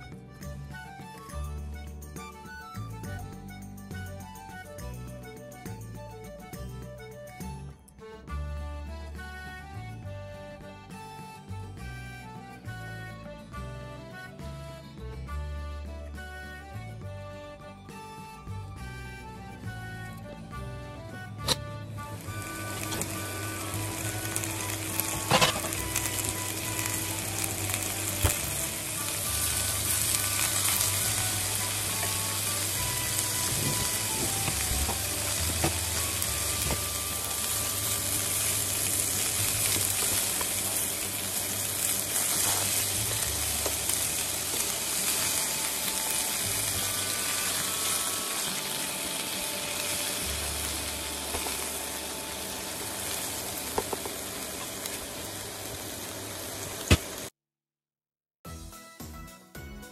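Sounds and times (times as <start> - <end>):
food sizzling in oil: 22.1 - 57.3.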